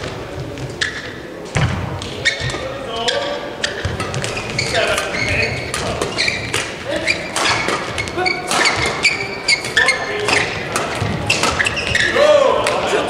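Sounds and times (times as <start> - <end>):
sneaker squeaks on court floor: 0.0 - 12.8
racket striking shuttlecock: 3.6 - 12.9.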